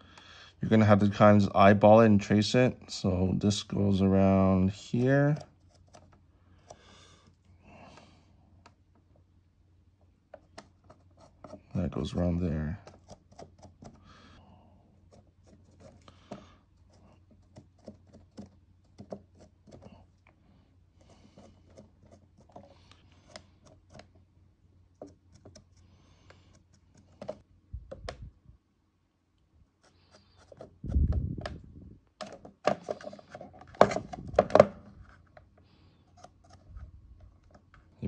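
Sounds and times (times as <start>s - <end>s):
marker scratching on plastic: 10.4s - 11.7s.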